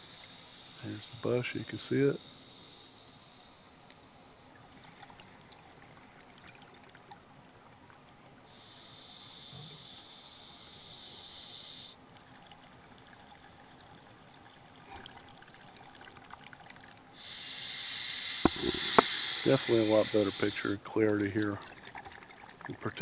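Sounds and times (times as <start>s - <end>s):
faint water noise: 0.0s - 23.0s
diver breathing through regulator: 17.2s - 20.5s.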